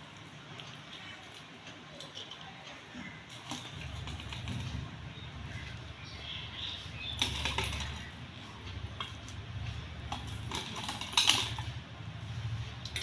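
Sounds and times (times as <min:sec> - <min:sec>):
prawn shells clicking on plate: 0:03.3 - 0:04.8, 0:07.1 - 0:08.2, 0:10.1 - 0:11.8.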